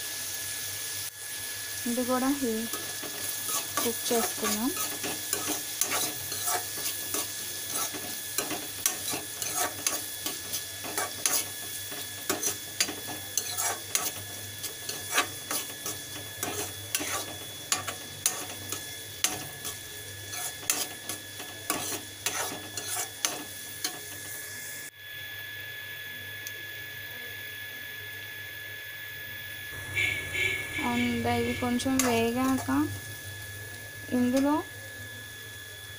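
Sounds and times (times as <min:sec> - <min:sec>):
onions sizzling in oil: 0:00.0 - 0:26.9, 0:28.2 - 0:35.9
metal spoon scraping pan: 0:02.7 - 0:24.2, 0:30.8 - 0:32.8.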